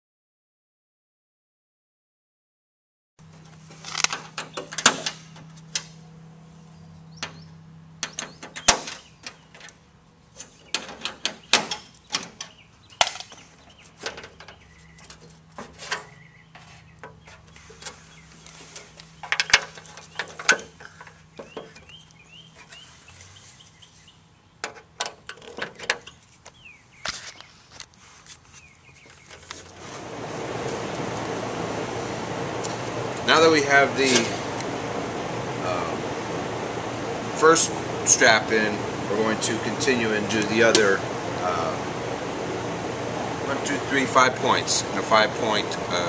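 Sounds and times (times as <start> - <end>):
steady low hum: 3.2 - 24.6, 28.7 - 46.0
bird chirps: 6.7 - 9.6, 10.5 - 15.2, 16.0 - 19.3, 20.0 - 24.6, 26.5 - 27.6.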